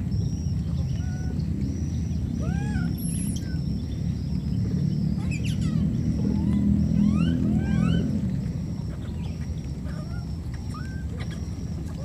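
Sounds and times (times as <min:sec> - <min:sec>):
wind rumble on microphone: 0:00.0 - 0:12.0
squeaky animal call: 0:05.2 - 0:08.2, 0:08.9 - 0:12.0.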